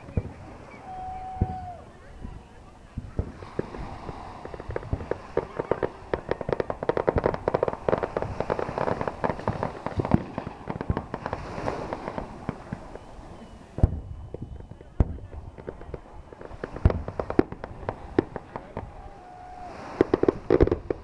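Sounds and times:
fireworks crackling: 0:00.0 - 0:21.0.

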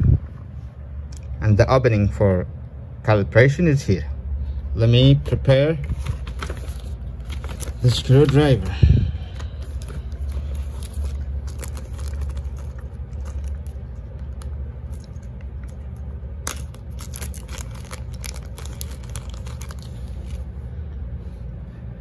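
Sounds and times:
low hum: 0:00.0 - 0:22.0
plastic bag crinkling: 0:05.9 - 0:20.5.

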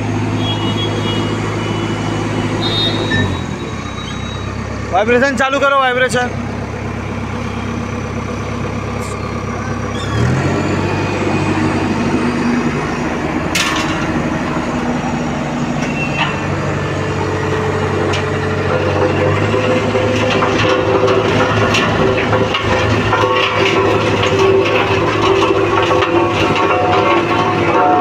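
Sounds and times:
road roller engine running: 0:00.0 - 0:28.0
drum vibration hum: 0:10.8 - 0:28.0.

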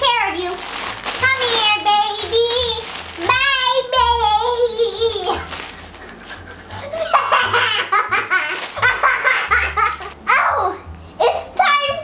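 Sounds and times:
girls laughing: 0:05.3 - 0:10.2.

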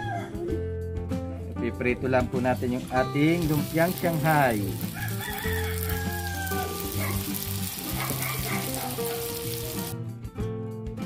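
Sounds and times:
background music: 0:00.0 - 0:11.0
deep-frying sizzle in oil: 0:02.9 - 0:10.0.

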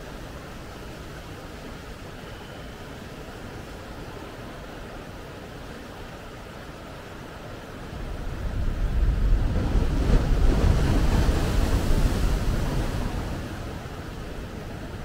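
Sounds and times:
ocean wave breaking on shore: 0:07.9 - 0:15.0.

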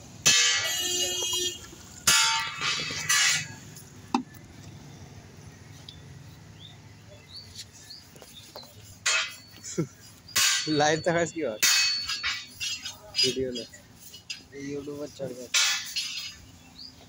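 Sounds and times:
bird chirps: 0:05.7 - 0:15.2.

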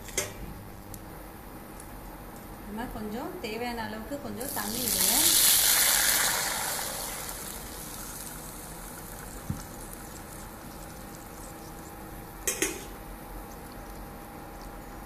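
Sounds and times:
water hissing in hot pan: 0:04.5 - 0:12.0.

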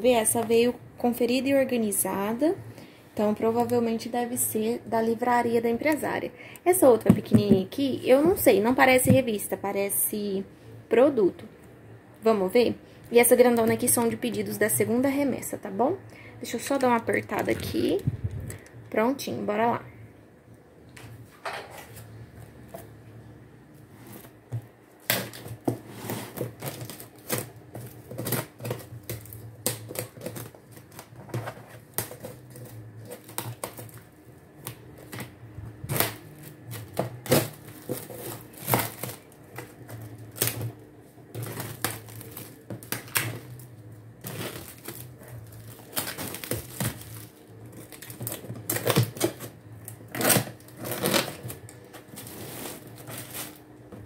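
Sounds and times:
plastic film crinkling: 0:24.0 - 0:53.8.

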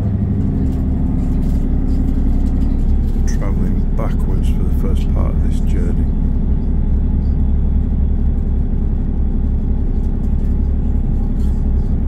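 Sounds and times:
diesel train rumbling: 0:00.0 - 0:12.0.

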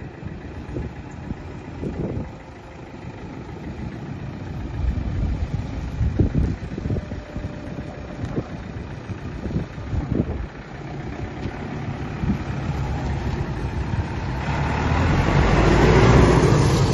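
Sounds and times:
tractor diesel engine running: 0:00.0 - 0:16.9.

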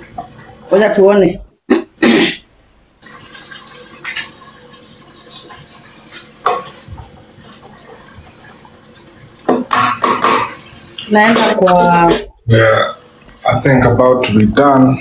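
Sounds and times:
wooden spoon knocking a pot: 0:09.4 - 0:10.6.

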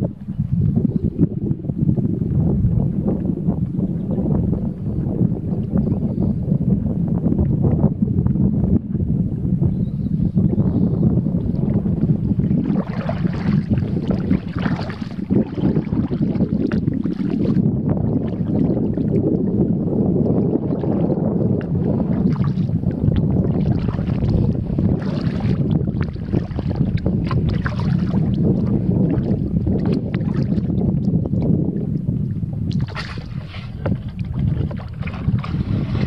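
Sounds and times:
wind buffeting microphone: 0:00.0 - 0:36.0
paddle splashes: 0:11.6 - 0:19.6, 0:20.2 - 0:32.0, 0:32.6 - 0:36.0.

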